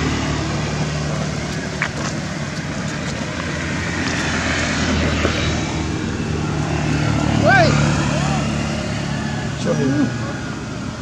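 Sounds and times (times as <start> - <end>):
low engine-like hum: 0.0 - 11.0
outdoor noise: 0.0 - 11.0.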